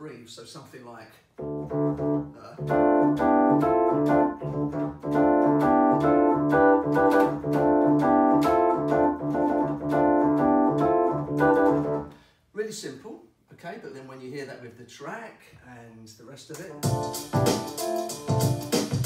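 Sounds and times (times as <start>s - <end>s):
electronic keyboard funk riff: 1.4s - 12.1s, 16.8s - 19.0s.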